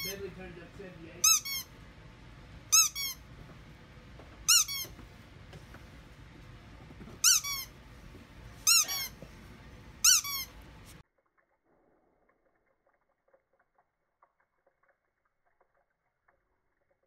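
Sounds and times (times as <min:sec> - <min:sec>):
squeaky dog toy squeaking: 0:01.2 - 0:01.7, 0:02.7 - 0:03.2, 0:04.4 - 0:05.0, 0:07.2 - 0:07.7, 0:08.6 - 0:09.2, 0:10.0 - 0:10.5.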